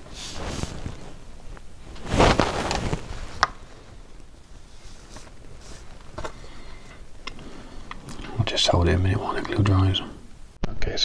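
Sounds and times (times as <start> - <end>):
hands rustling on wooden hull: 0.0 - 6.2.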